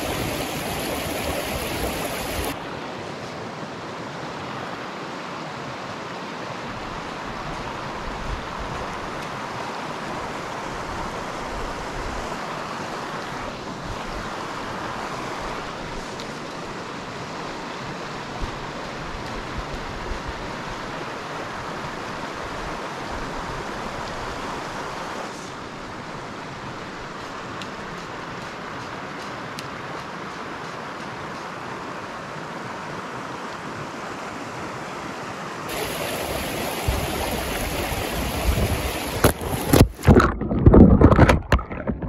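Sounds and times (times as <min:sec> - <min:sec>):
river rushing: 0:00.0 - 0:41.9
wind buffeting microphone: 0:36.0 - 0:42.0.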